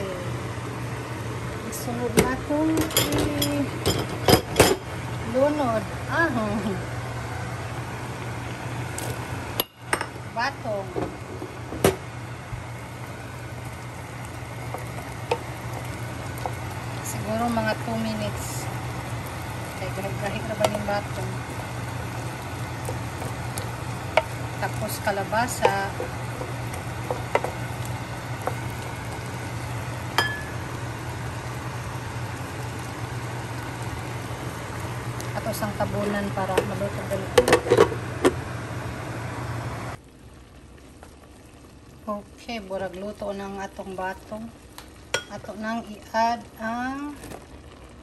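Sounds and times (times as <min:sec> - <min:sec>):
steady low hum: 0:00.0 - 0:48.0
soup boiling in a pot: 0:00.1 - 0:48.0
cookware clinking on pan: 0:30.2 - 0:30.5.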